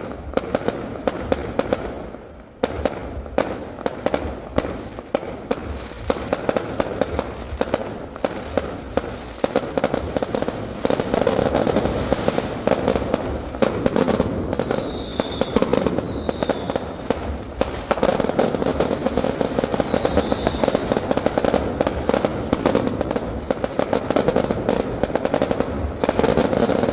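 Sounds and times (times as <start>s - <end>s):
fireworks bursting and crackling: 0.0s - 26.9s
falling high whistles: 14.4s - 16.9s, 19.6s - 21.0s.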